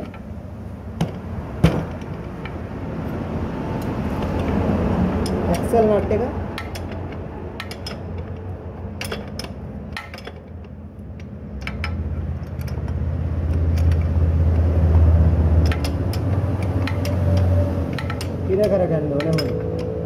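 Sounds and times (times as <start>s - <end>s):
low hum: 0.0s - 20.0s
spanners clinking on metal: 6.5s - 14.1s, 15.6s - 20.0s.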